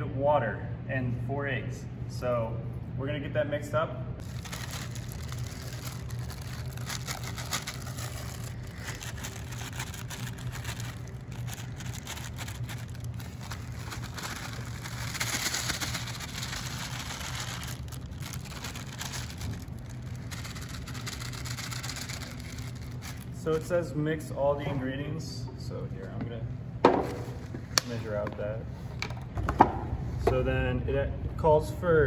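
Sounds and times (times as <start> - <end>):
steady low hum: 0.0 - 32.0
plastic bag crinkling: 4.2 - 23.4.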